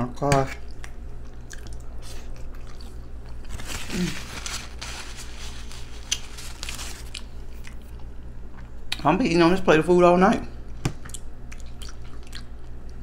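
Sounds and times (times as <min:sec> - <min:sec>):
low electrical hum: 0:00.0 - 0:13.0
mouth chewing food: 0:00.5 - 0:04.0, 0:10.9 - 0:13.0.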